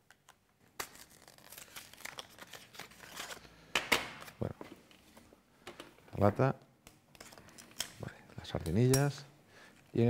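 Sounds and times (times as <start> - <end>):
rustling and scraping of card: 0.8 - 3.5.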